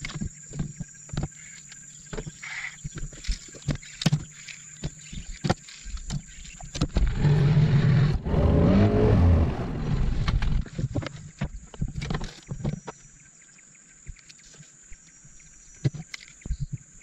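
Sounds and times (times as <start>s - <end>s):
outboard motor running: 5.0s - 11.0s.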